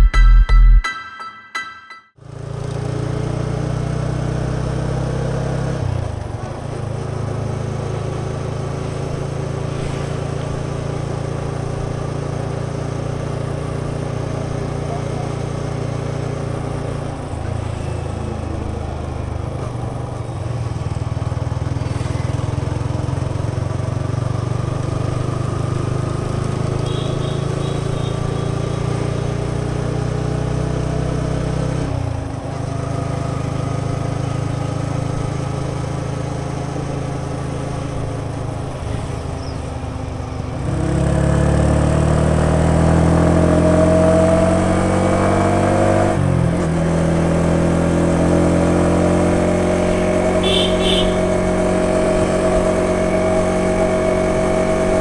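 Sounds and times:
motorcycle engine running: 18.0 - 44.6, 46.3 - 55.0.

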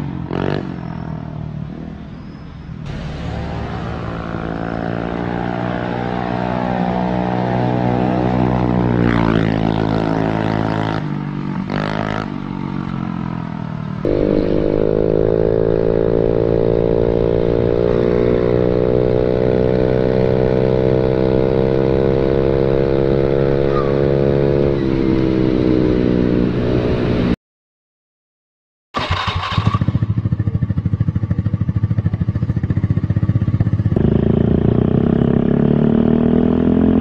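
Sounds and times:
scooter engine with racing exhaust: 14.0 - 27.3, 29.0 - 37.0.

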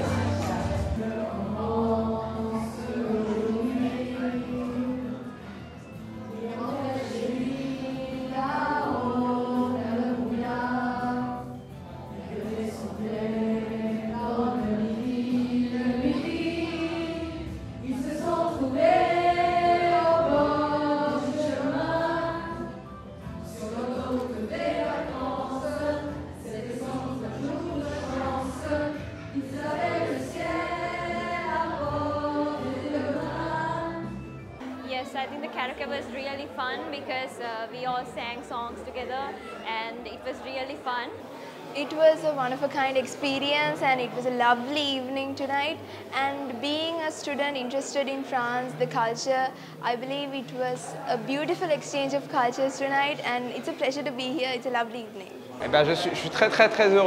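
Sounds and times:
women singing a duet: 0.0 - 5.6, 6.3 - 41.2.

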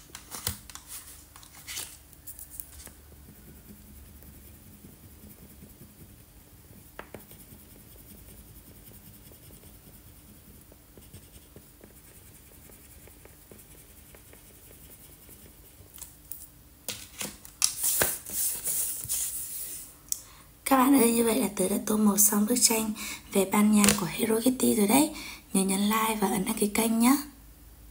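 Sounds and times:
paper sheet rustling: 0.0 - 3.0, 16.9 - 19.9
crayon scratching on paper: 2.3 - 16.0.

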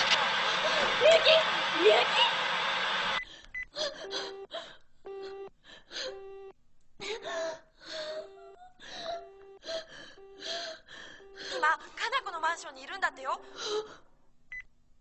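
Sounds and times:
woman gasping and whimpering: 3.3 - 12.0, 13.4 - 14.1
phone busy beep tone: 4.0 - 4.5, 5.1 - 5.5, 6.1 - 6.5, 9.2 - 10.6, 11.2 - 11.8.

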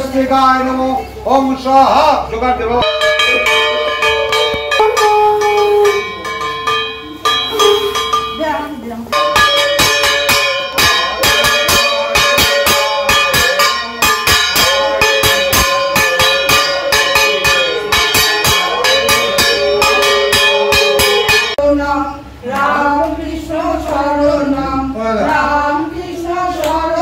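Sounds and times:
bell-metal gong struck rapidly: 2.8 - 21.6
conch shell blasts: 2.8 - 21.6.

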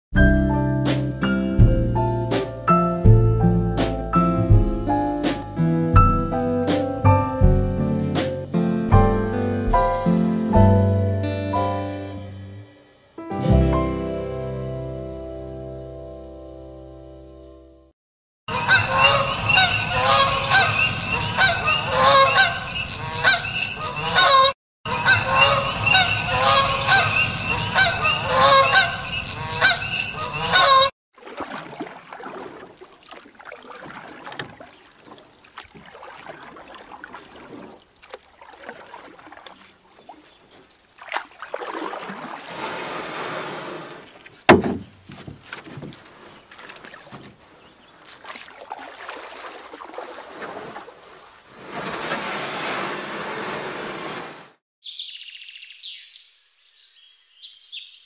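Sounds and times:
geese honking in flight: 18.5 - 30.9.

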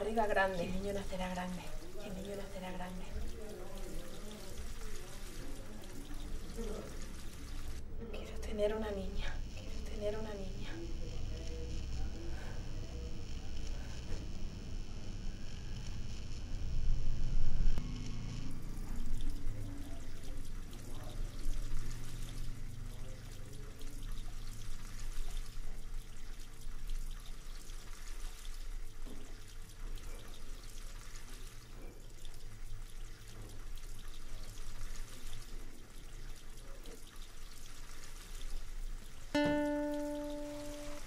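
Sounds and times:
water running in a sink: 0.0 - 16.6, 17.8 - 41.0
plucked guitar note: 39.4 - 41.0.

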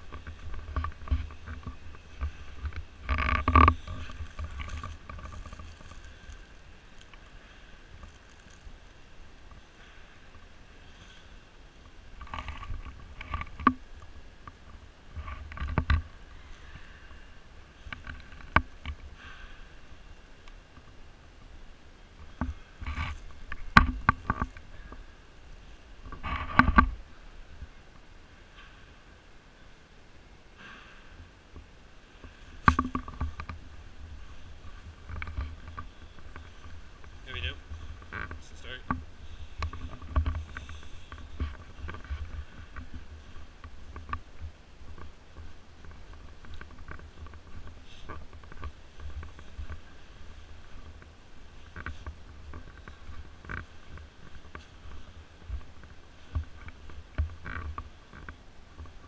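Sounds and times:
low steady rumble: 0.0 - 59.0
sharp clicks and knocks: 12.2 - 16.1, 22.2 - 25.0, 31.6 - 49.8.

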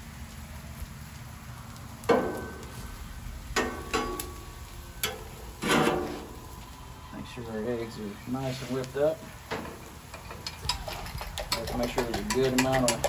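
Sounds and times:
metal spatula scraping griddle: 5.0 - 6.4, 8.4 - 8.9, 9.5 - 13.0.

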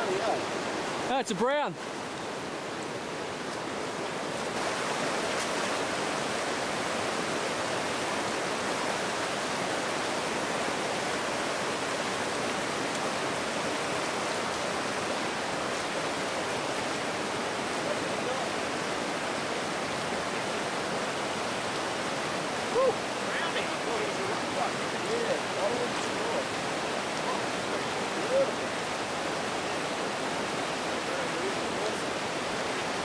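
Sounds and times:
river water rushing over stones: 0.0 - 33.0.

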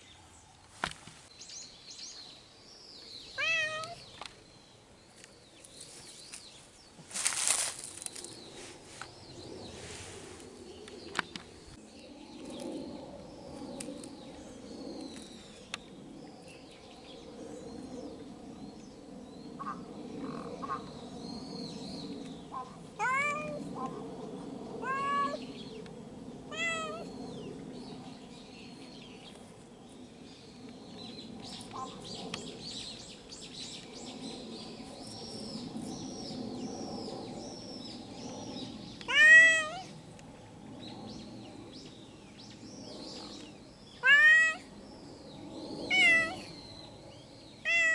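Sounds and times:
cat meowing: 3.4 - 4.0, 23.0 - 23.6, 24.8 - 25.4, 26.5 - 27.1, 39.1 - 39.9, 44.0 - 44.6, 45.9 - 46.4, 47.7 - 47.9.

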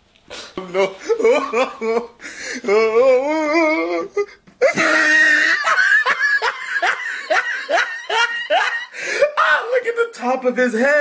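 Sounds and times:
loud laughter: 0.6 - 2.2, 4.6 - 9.5.

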